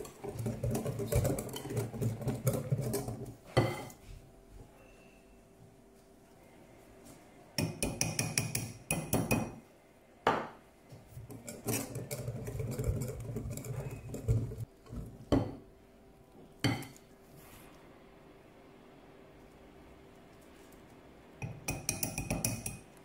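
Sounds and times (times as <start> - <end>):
whisk swishing and scraping batter: 0.0 - 4.3, 10.9 - 15.4, 17.0 - 17.9
whisk clinking against glass bowl: 21.4 - 22.9.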